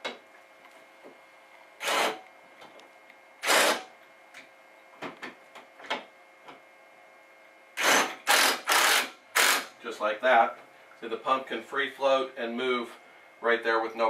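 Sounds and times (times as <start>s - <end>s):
power driver whirring: 1.8s - 2.3s, 3.4s - 3.9s, 7.8s - 9.8s.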